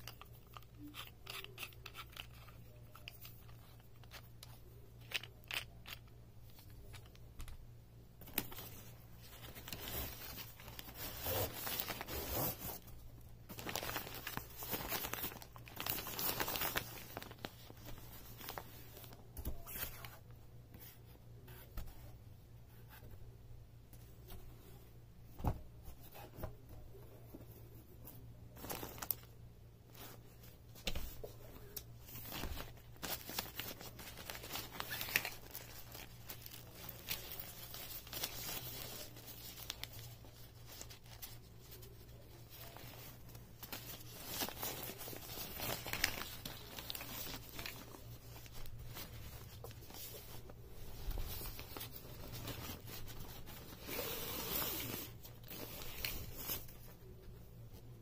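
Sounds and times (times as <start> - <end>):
nylon bag rustling and crinkling: 8.4 - 19.1, 32.0 - 56.8.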